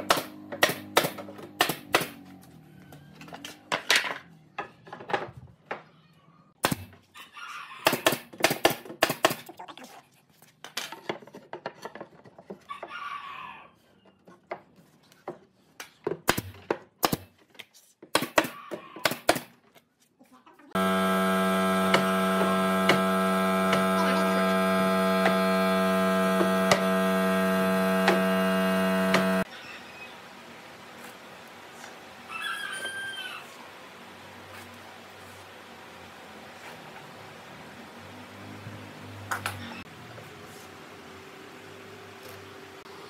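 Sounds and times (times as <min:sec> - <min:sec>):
low electrical hum: 0:20.8 - 0:32.3.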